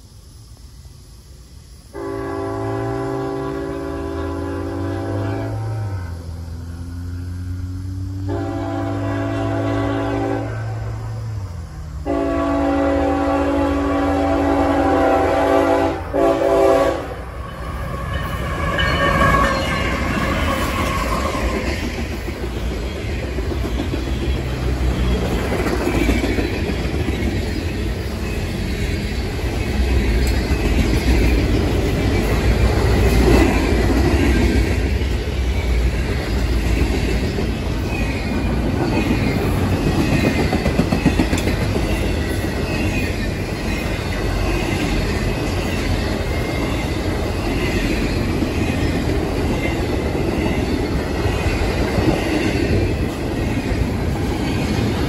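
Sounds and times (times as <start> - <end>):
freight train wheels rumbling: 0.0 - 55.0
faint high squeal: 17.4 - 21.7.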